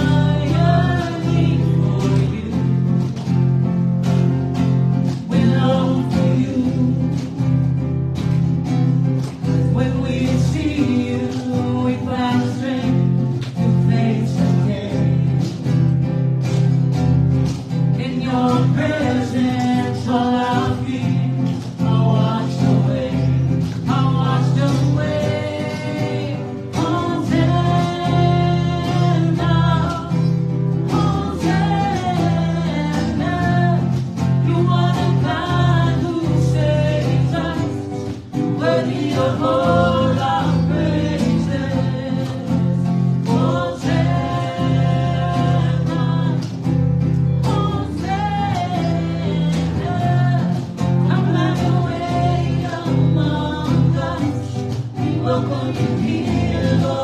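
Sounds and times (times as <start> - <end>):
acoustic guitar: 0.0 - 57.0
woman singing into microphone: 30.9 - 37.8, 47.4 - 57.0.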